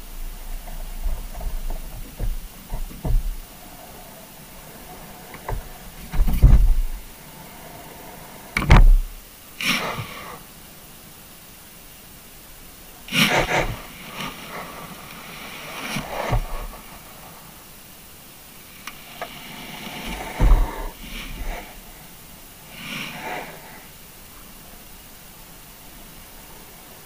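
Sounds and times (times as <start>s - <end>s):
steady underwater hiss: 0.0s - 27.0s
deep thump: 0.2s - 3.5s, 5.4s - 7.1s, 8.6s - 9.2s, 20.1s - 21.7s
knocks and scrapes on camera rig: 0.6s - 3.5s, 5.4s - 7.1s, 13.2s - 13.8s, 16.0s - 16.8s, 20.0s - 21.7s.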